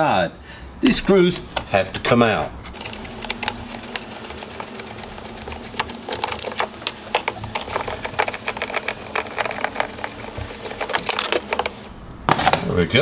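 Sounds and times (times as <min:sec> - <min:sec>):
screwdriver clicking and scraping: 0:02.7 - 0:11.9.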